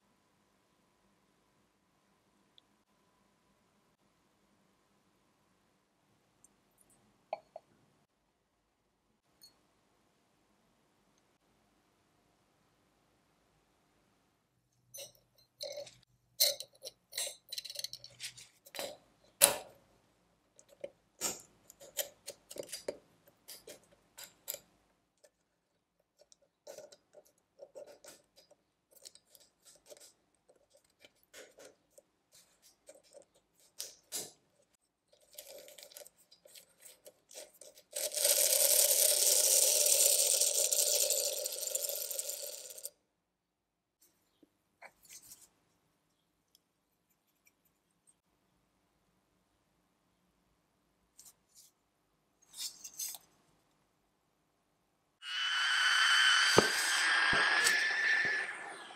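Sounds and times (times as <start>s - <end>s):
small metal clicks and scrapes: 14.9s - 19.7s, 20.6s - 25.5s, 26.1s - 42.9s, 52.4s - 53.3s.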